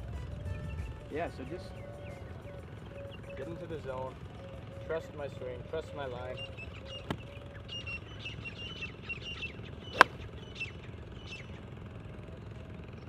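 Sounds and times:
small birds chirping: 1.4s - 13.0s
golf club striking ball: 9.9s - 10.3s.

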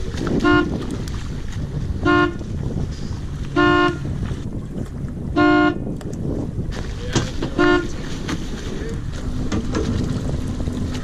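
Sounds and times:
short horn toots: 0.4s - 0.8s, 2.0s - 2.4s, 3.5s - 4.1s, 7.6s - 7.9s.

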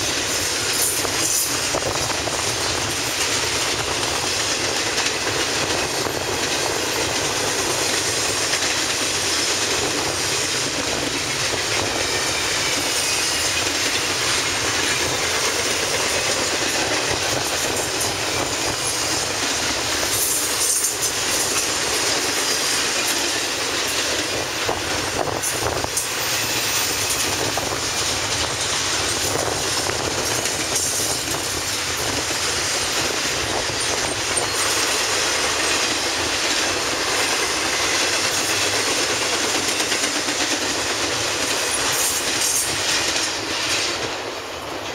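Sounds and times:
freight train rolling past: 0.0s - 44.9s.

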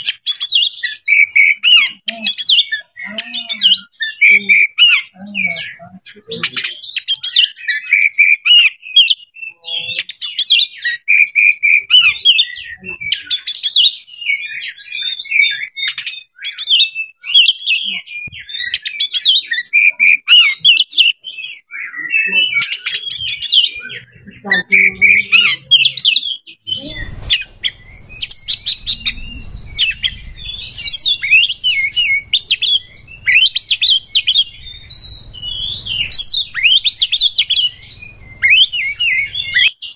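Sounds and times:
bird singing varied song: 0.0s - 39.9s.

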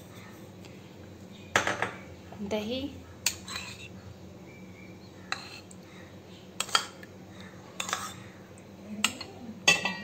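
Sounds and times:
steel spoon scraping steel bowl: 3.3s - 3.9s.

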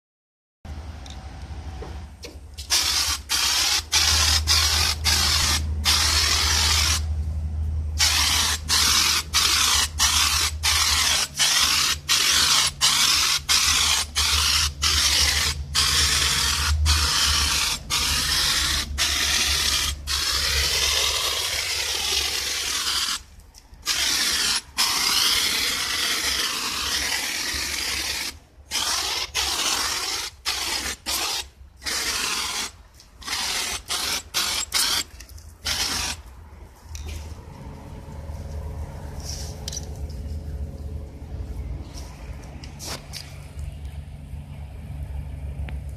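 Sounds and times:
foam sprayer hissing: 2.6s - 7.1s, 8.0s - 36.2s.

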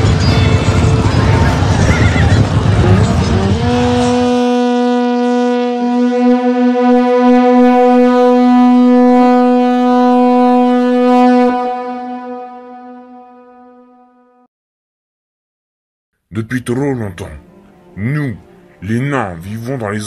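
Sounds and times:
war horn long note: 2.8s - 14.5s.

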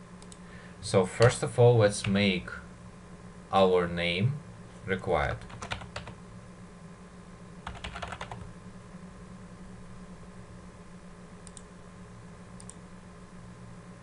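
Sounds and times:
low electrical hum: 0.0s - 14.0s
typing on computer keyboard: 5.4s - 6.2s, 7.6s - 8.5s.

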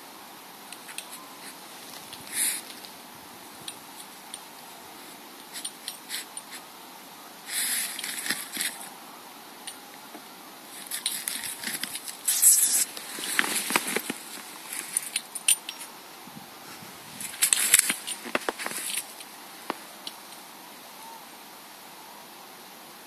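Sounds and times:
scratchy clicks in soil: 7.5s - 8.9s, 9.7s - 15.9s, 17.2s - 20.2s.

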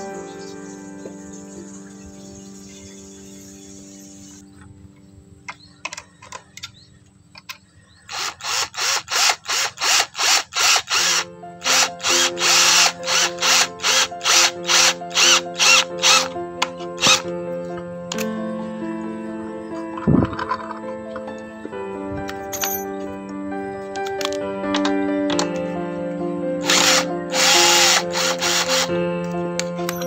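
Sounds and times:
background music: 0.0s - 6.8s, 8.4s - 30.0s
cordless drill driving screw: 8.1s - 16.3s, 17.0s - 17.3s, 26.6s - 28.9s.

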